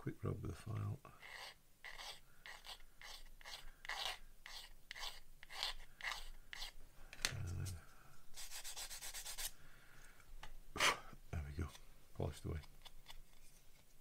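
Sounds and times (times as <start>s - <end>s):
file rasping on plastic: 1.2s - 6.8s.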